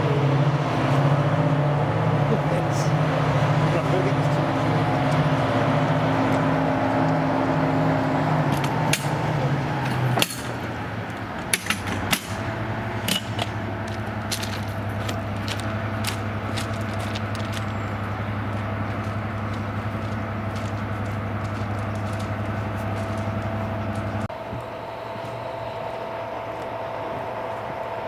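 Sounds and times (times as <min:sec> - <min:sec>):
diesel locomotive engine drone: 0:00.0 - 0:28.0
sharp clicks and knocks: 0:08.5 - 0:09.2, 0:09.8 - 0:12.4, 0:13.0 - 0:17.7.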